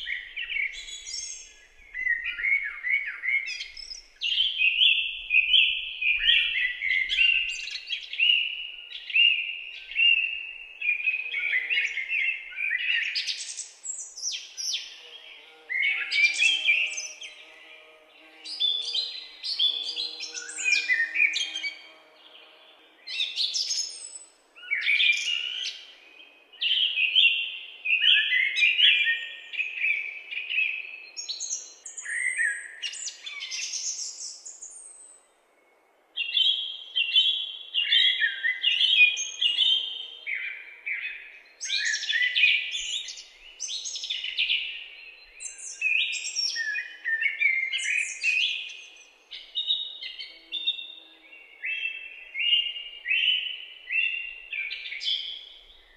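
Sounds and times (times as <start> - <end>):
songbirds singing: 0.0 - 55.9.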